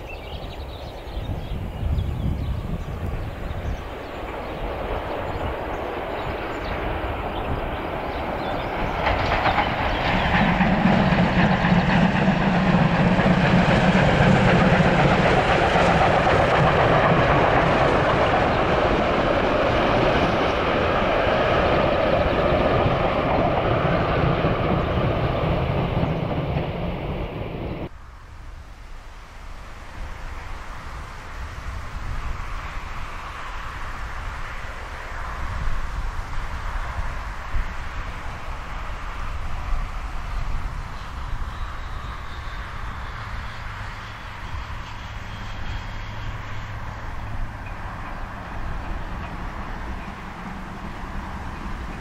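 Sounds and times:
steam train rumbling past: 0.0 - 52.0.

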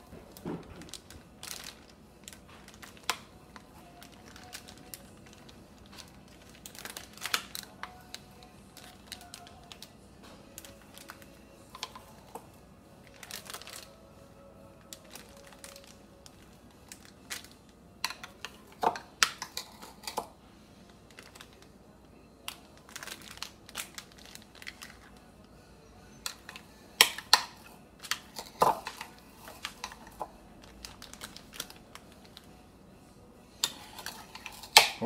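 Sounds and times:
plastic bag crinkling: 0.0 - 12.4, 13.0 - 14.0, 14.8 - 20.2, 20.9 - 21.8, 22.4 - 25.4, 28.0 - 32.5.

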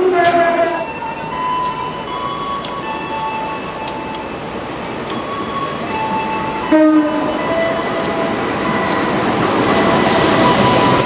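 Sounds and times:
locomotive horn blast: 0.0 - 0.8, 6.6 - 7.8
train running: 0.0 - 11.0.

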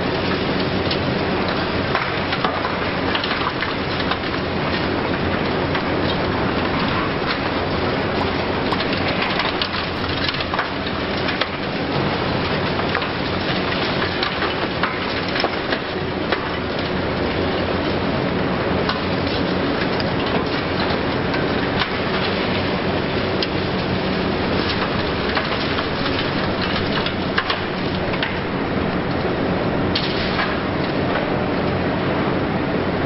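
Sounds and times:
concrete crackling and debris falling: 0.0 - 31.7
diesel engine running: 3.9 - 13.6.

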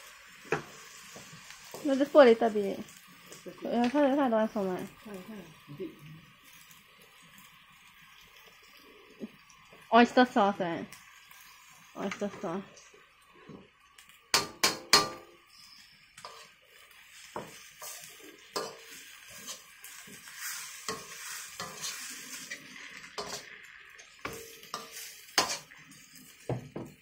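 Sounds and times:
faint frying sizzle: 0.0 - 27.0
spatula scraping a wok: 14.3 - 26.5.

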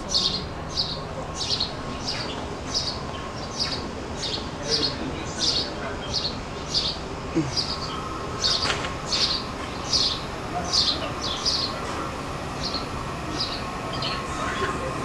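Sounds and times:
bird chirping: 0.0 - 11.8.

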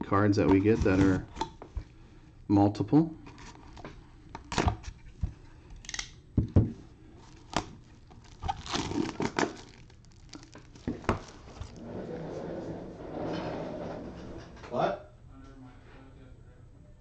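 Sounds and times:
plastic shrink-wrap tearing: 7.2 - 11.8.

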